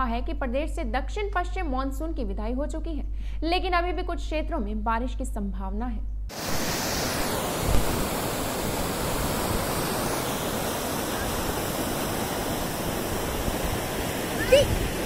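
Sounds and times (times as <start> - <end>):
floodwater rushing: 6.3 - 15.0.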